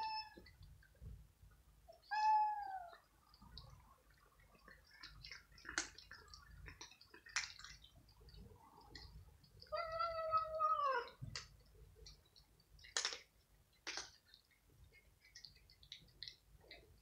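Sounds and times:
cat meowing: 0:02.0 - 0:03.0, 0:09.7 - 0:11.2
cats crunching dry kibble: 0:04.6 - 0:10.5, 0:12.8 - 0:16.9.

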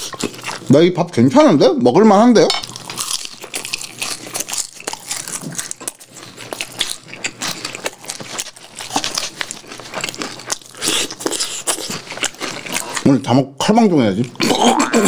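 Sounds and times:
person chewing crispy chicken: 0:00.0 - 0:00.7, 0:02.6 - 0:13.2.

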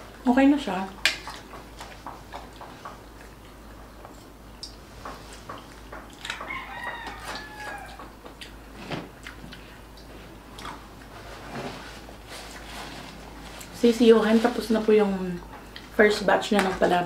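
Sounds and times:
eating clicks and taps: 0:01.0 - 0:07.1
rooster crowing: 0:06.3 - 0:08.1.

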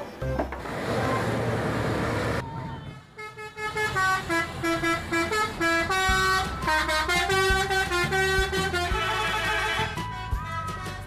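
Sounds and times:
bus horn playing a tune: 0:02.9 - 0:11.0.

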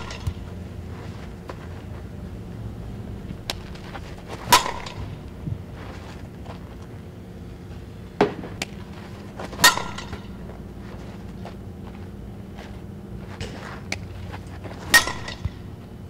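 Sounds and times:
bat hitting ball ping: 0:00.0 - 0:00.5, 0:04.4 - 0:05.5, 0:09.6 - 0:10.4, 0:14.9 - 0:15.7.

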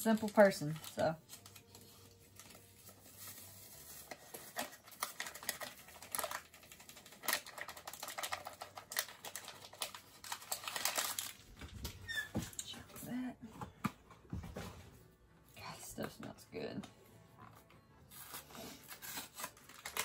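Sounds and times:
packet crinkling: 0:00.0 - 0:12.0, 0:18.1 - 0:20.0.

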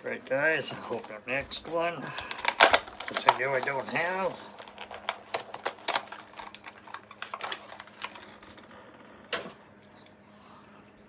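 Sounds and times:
plastic blister pack crackling: 0:00.9 - 0:08.6.

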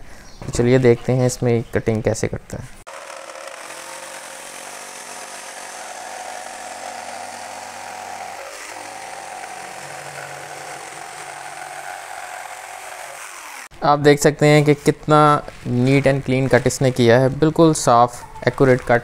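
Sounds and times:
jigsaw cutting board: 0:02.9 - 0:13.7.

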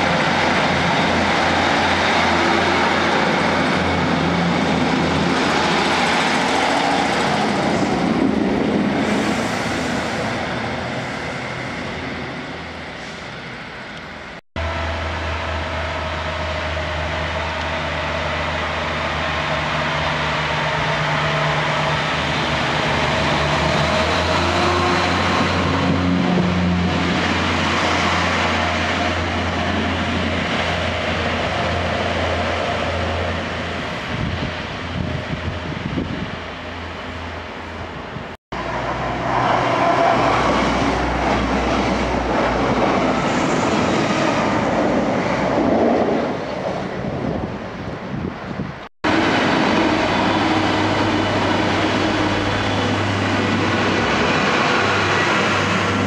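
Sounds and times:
diesel train pulling away: 0:00.0 - 0:56.0.

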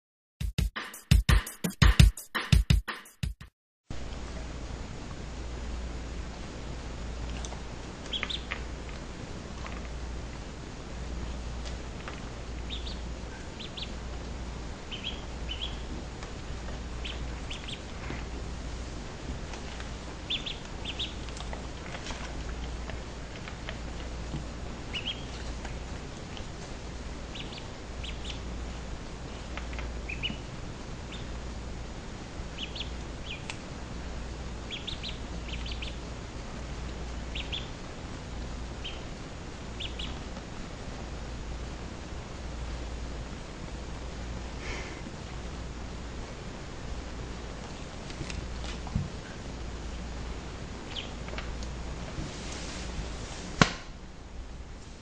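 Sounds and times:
duckling peeping: 0:07.3 - 0:09.8, 0:11.6 - 0:18.4, 0:19.4 - 0:31.6, 0:32.4 - 0:33.7, 0:34.5 - 0:40.5, 0:50.8 - 0:51.4.

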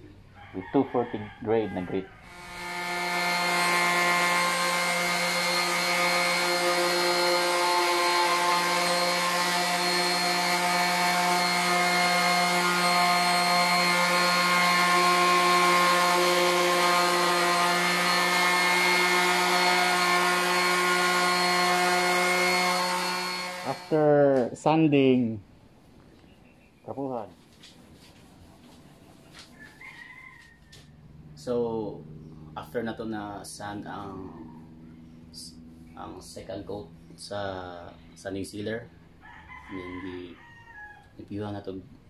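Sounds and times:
electric sander humming: 0:02.2 - 0:24.5.

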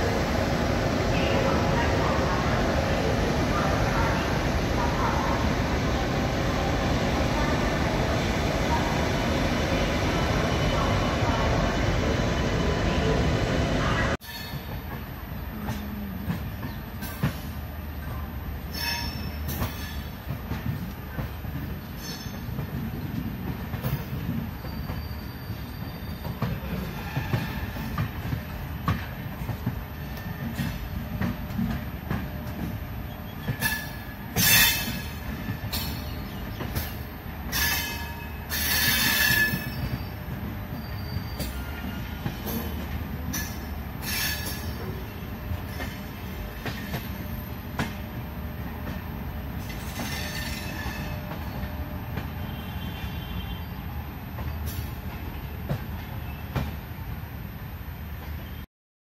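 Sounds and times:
train wheels rumbling on track: 0:00.0 - 0:58.7
high wheel squeal: 0:24.6 - 0:26.3, 0:37.5 - 0:42.7, 0:43.4 - 0:44.8.

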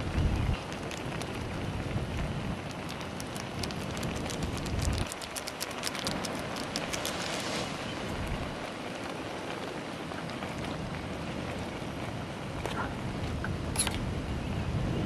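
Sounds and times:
soup boiling with bubbling pops: 0:00.0 - 0:13.7
low rumble: 0:06.6 - 0:09.0.

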